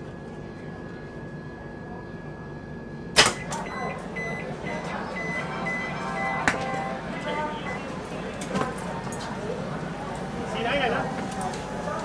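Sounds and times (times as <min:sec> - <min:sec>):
train door clunk: 0:03.2 - 0:03.8, 0:06.0 - 0:07.2
short high warning beeps: 0:03.3 - 0:07.9.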